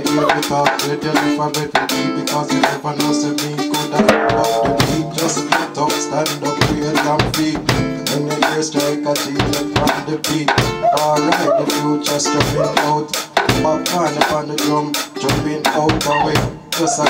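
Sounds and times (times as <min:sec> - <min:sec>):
guitar: 0:00.0 - 0:17.0
reggae music: 0:00.0 - 0:17.0
bass line: 0:04.0 - 0:06.9
bass drum and snare beat: 0:04.0 - 0:08.6, 0:09.4 - 0:10.8.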